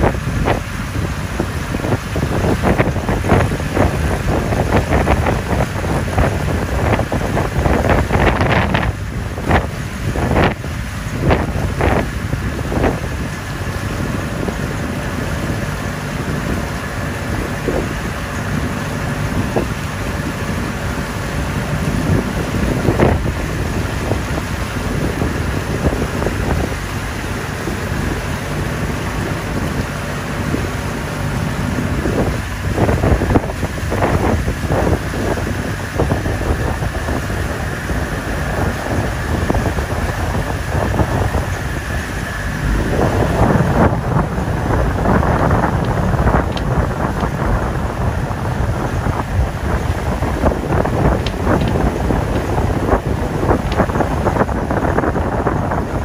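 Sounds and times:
boat engine drone: 0:00.0 - 0:56.0
wind buffeting microphone: 0:00.0 - 0:56.0.

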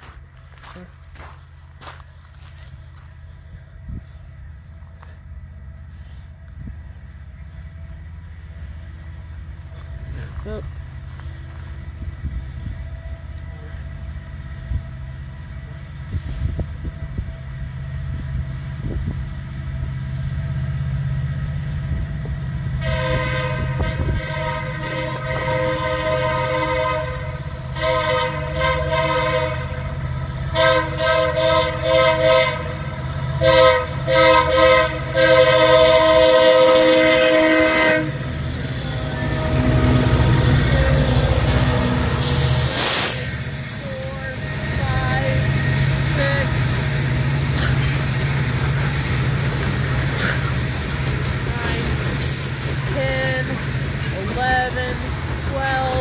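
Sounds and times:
diesel locomotives rumbling: 0:00.0 - 0:56.0
locomotive air horn blasts: 0:22.8 - 0:46.8.

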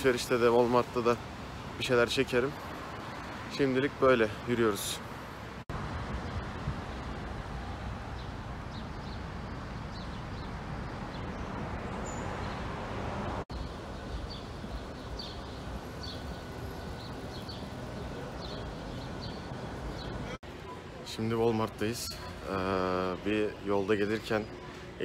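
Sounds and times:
traffic hum: 0:00.0 - 0:25.0
small birds chirping: 0:08.0 - 0:12.8, 0:13.5 - 0:25.0.

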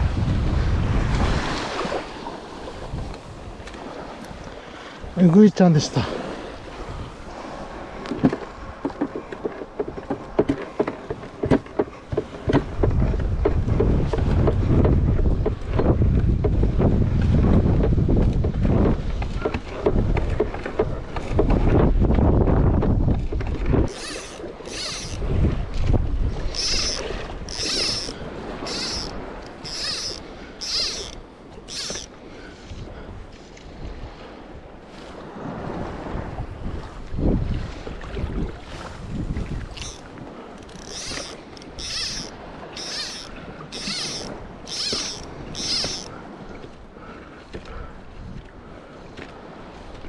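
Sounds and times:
wind buffeting microphone: 0:00.0 - 0:50.0
fly line zipping through rod guides: 0:23.9 - 0:25.2, 0:26.4 - 0:32.1, 0:39.7 - 0:46.1.

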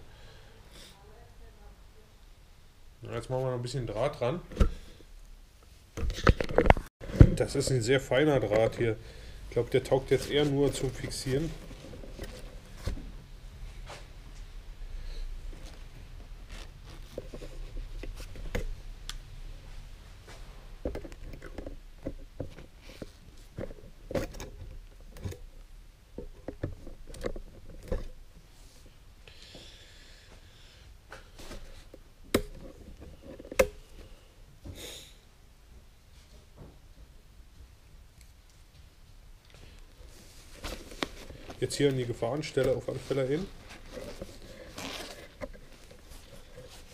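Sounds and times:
nylon canopy rustling: 0:39.6 - 0:46.9
scraping rustle: 0:40.0 - 0:46.9.

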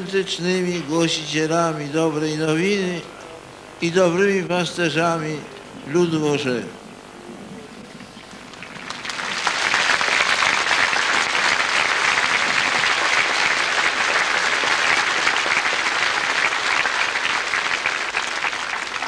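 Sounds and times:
large crowd applauding: 0:08.5 - 0:19.0.

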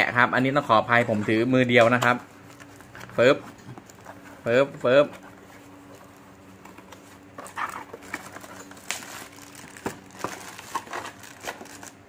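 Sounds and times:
cardboard scraping and rustling: 0:00.9 - 0:12.0
bubble wrap crinkling: 0:05.2 - 0:12.0.

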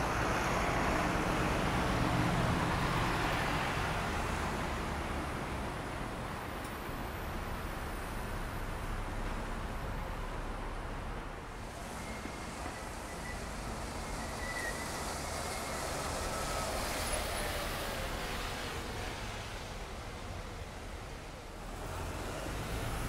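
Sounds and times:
tyres hissing on wet street: 0:00.0 - 0:23.0
faint high squeal: 0:11.8 - 0:18.1.

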